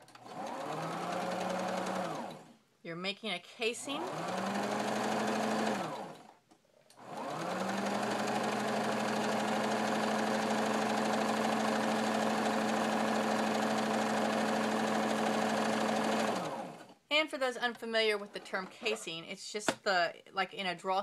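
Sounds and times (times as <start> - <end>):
electric sewing machine stitching: 0.0 - 2.5, 3.8 - 6.4, 7.0 - 17.0.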